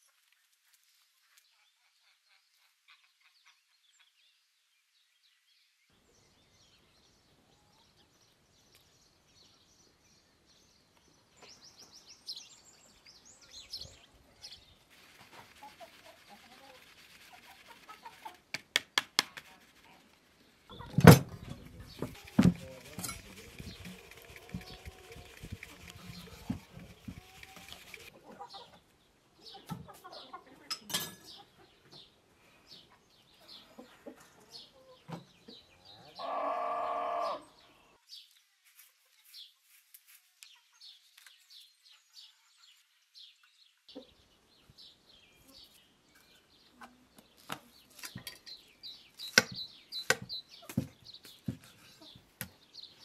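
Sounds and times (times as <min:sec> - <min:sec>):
farm animal calling: 0:35.9 - 0:37.8.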